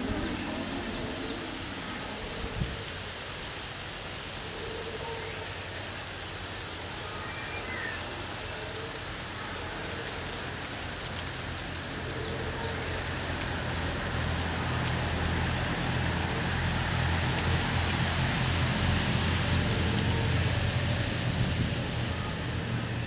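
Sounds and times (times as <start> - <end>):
rain hiss: 0.0 - 23.0
low rumble: 14.9 - 23.0.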